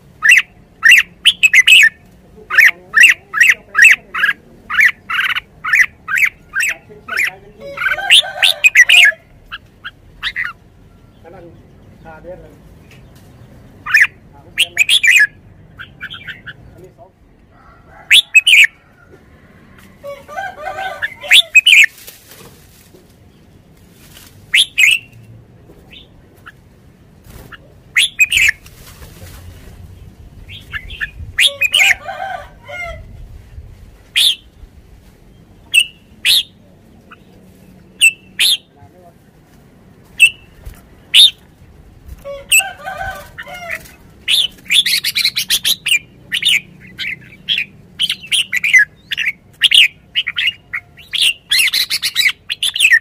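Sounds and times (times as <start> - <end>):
bird chattering: 0.1 - 17.2, 18.1 - 18.8, 20.1 - 22.0, 24.5 - 25.2, 27.3 - 28.6, 30.0 - 33.1, 34.1 - 34.6, 35.5 - 38.8, 40.1 - 41.5, 42.2 - 53.0
bird singing in sharp bursts: 0.2 - 12.2, 12.8 - 16.8, 21.0 - 21.9, 24.5 - 25.2, 27.5 - 28.6, 30.0 - 32.0, 34.2 - 34.6, 35.3 - 38.7, 40.2 - 41.4, 43.8 - 53.0.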